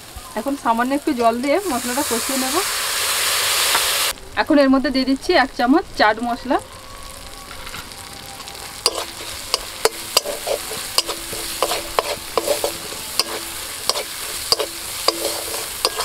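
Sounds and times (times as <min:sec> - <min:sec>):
food sizzling in oil: 0:00.0 - 0:16.0
metal spatula scraping a pan: 0:08.8 - 0:16.0.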